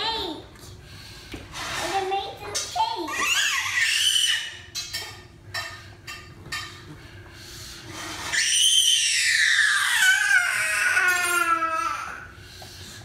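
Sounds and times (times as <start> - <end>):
child wailing: 8.4 - 12.3.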